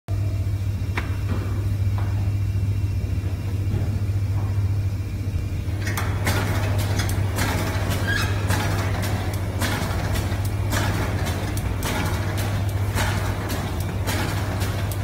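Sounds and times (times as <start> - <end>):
wrapping machine humming: 0.1 - 15.0
sharp mechanical clacks: 5.7 - 15.0.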